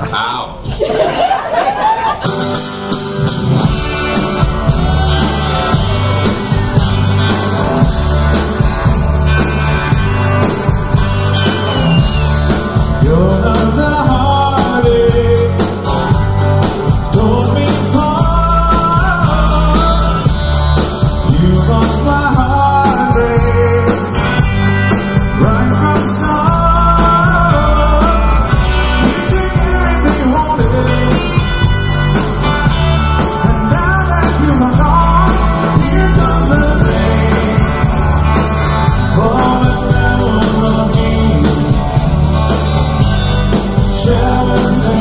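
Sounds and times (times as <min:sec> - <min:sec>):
live country-rock band: 0:00.0 - 0:45.0
person singing: 0:12.6 - 0:16.0, 0:16.8 - 0:20.4, 0:21.1 - 0:24.4, 0:25.2 - 0:31.7, 0:33.1 - 0:45.0.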